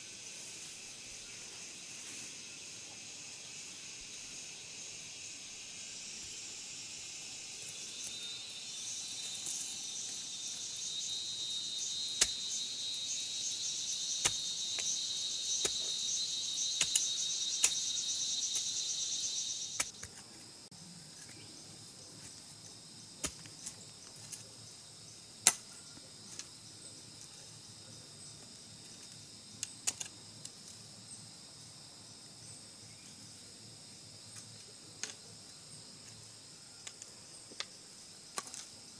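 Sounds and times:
insects buzzing: 0.0s - 38.9s
hand tool striking ground: 12.1s - 12.5s, 14.1s - 18.8s, 19.7s - 20.3s, 23.2s - 23.8s.

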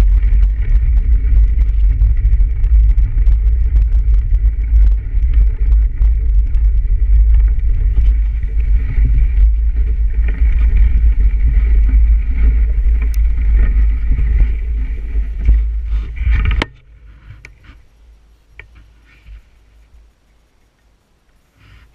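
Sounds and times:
wind buffeting microphone: 0.0s - 16.9s
bicycle tyre noise and rattles: 0.0s - 21.9s
faint clicks and knocks: 0.0s - 21.9s.

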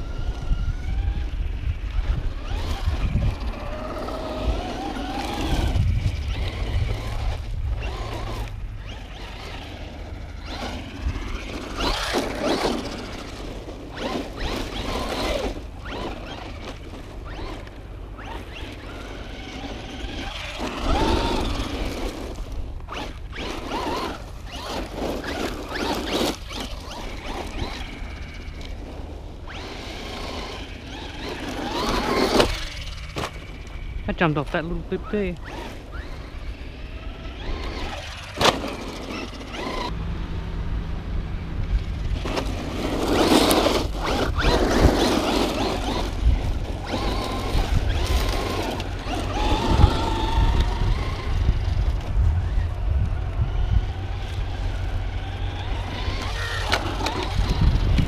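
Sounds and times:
electric motor whining: 0.0s - 58.0s.

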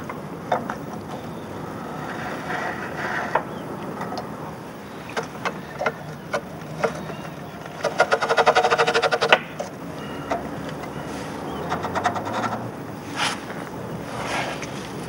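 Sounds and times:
ratchet-like run of clicks: 5.2s - 9.7s, 11.6s - 12.7s.

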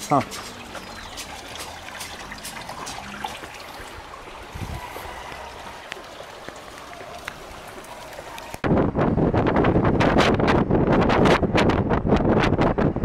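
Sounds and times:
faint footsteps: 0.0s - 8.6s
water trickling in a channel: 0.0s - 8.7s.

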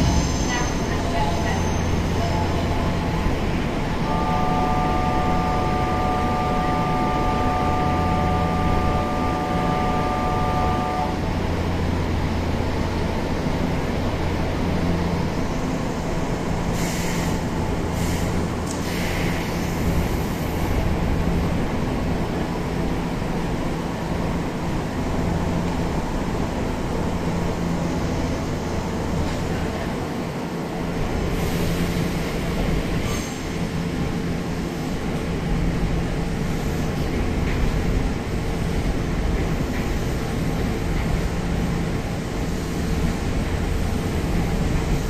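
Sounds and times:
chord of steady tones: 4.0s - 11.3s.

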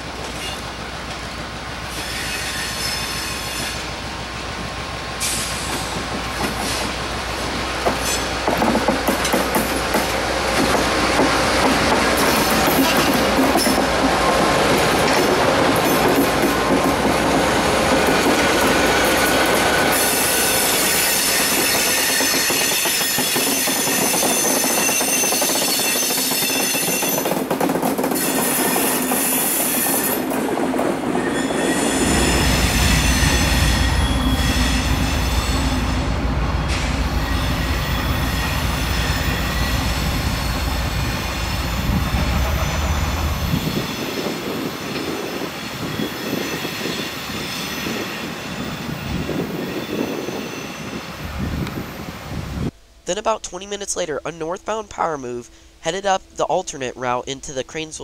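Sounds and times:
train track noise: 0.0s - 53.0s
locomotive wheels squealing: 1.9s - 3.9s, 8.0s - 8.4s, 18.8s - 27.3s, 31.2s - 35.8s, 36.7s - 51.2s.

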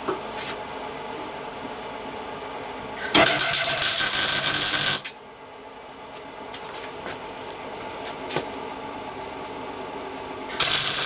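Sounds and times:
welding arc crackle: 3.0s - 5.1s, 10.5s - 11.0s.

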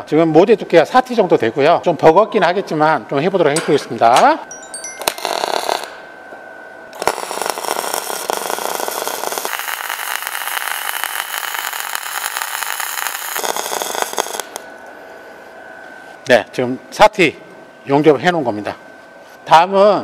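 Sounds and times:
welding arc crackling and sizzling: 5.0s - 6.0s, 6.9s - 14.8s.

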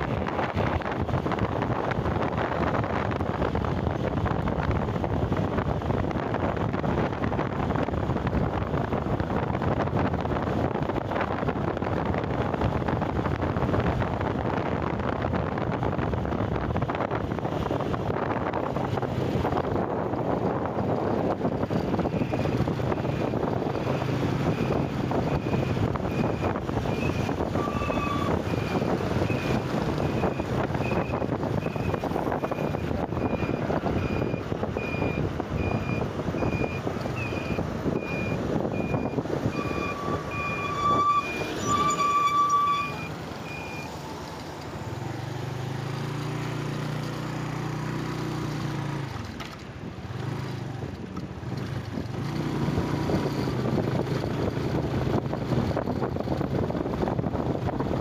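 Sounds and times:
wind rushing over microphone: 0.0s - 58.0s
electronic beeping: 23.8s - 44.1s
vehicle horn: 39.6s - 43.1s.

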